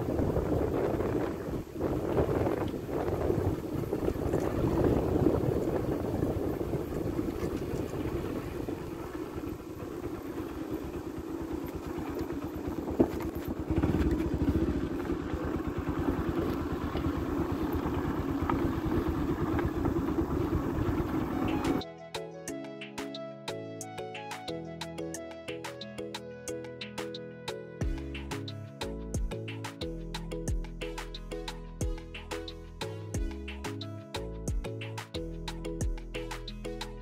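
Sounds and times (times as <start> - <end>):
motorcycle engine running: 0.0 - 21.8.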